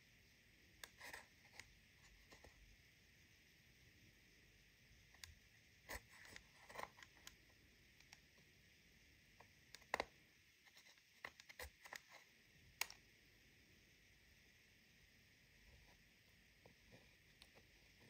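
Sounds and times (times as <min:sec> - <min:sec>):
plastic spatula scraping eyeshadow: 0:00.8 - 0:02.5, 0:05.9 - 0:07.4, 0:09.8 - 0:12.3.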